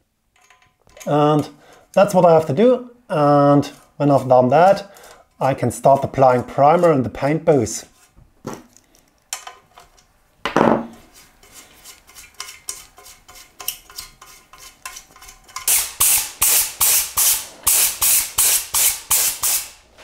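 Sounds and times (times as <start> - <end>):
metal bolts clinking: 0.3 - 1.2
knock on workbench: 10.5 - 10.9
spray gun hissing: 15.7 - 19.8.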